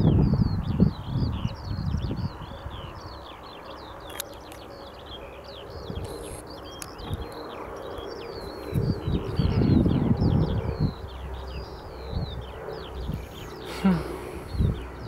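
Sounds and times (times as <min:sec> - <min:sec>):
small birds chirping: 0:00.0 - 0:15.0
distant combine harvester hum: 0:02.3 - 0:15.0.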